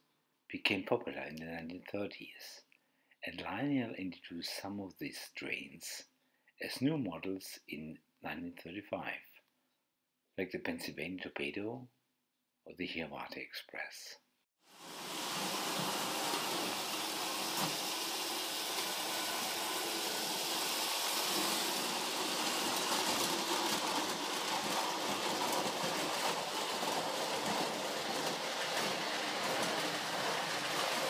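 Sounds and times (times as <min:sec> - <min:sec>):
toy train motor whirring: 0:14.8 - 0:31.0.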